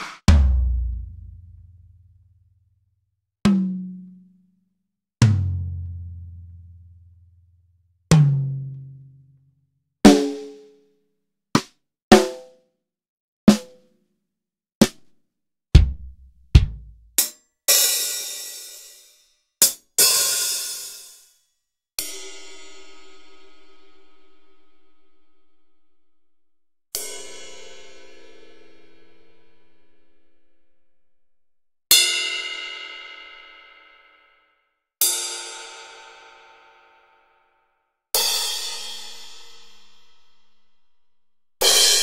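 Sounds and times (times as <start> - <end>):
drum one-shot samples: 0.0 - 1.3, 15.8 - 18.9
deep drum thumps: 15.8 - 17.1.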